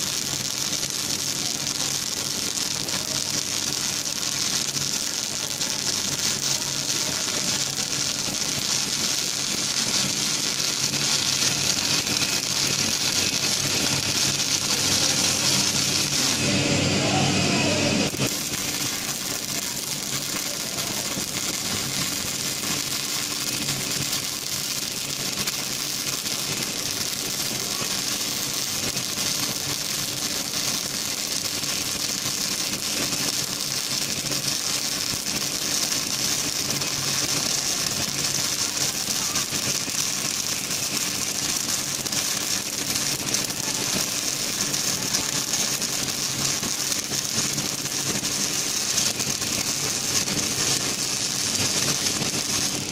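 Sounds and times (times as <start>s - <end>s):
welding arc crackling hiss: 0.0s - 52.9s.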